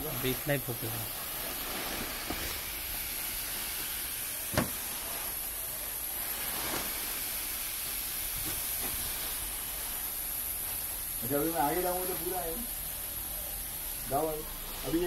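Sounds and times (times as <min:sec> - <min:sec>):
air hissing into suit: 0:00.0 - 0:15.0
sharp knock: 0:04.5 - 0:04.8.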